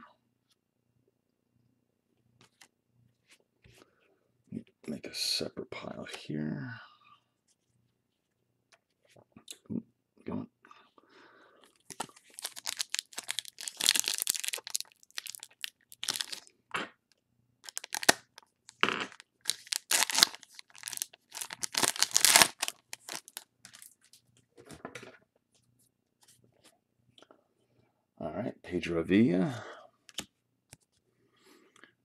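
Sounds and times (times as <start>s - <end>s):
foil wrapper tearing and crinkling: 11.9s - 16.4s, 17.6s - 23.9s.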